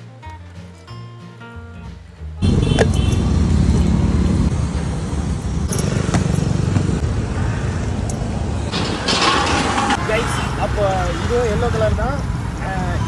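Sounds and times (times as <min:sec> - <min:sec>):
engine low rumble: 0:02.4 - 0:10.2.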